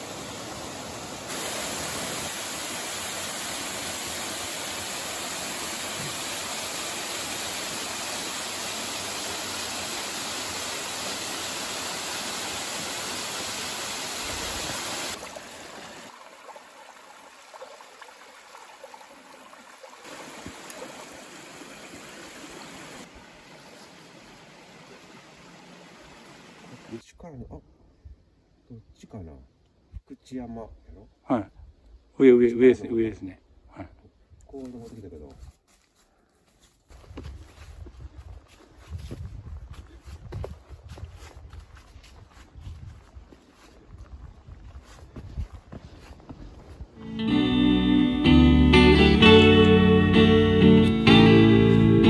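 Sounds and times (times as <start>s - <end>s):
small stream flowing: 0.0s - 27.0s
waterfall pouring over rocks: 0.0s - 27.0s.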